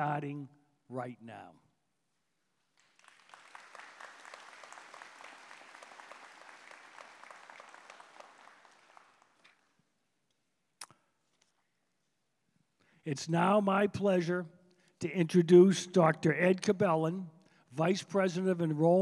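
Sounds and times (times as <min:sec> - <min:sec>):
audience applauding: 0:02.8 - 0:09.7.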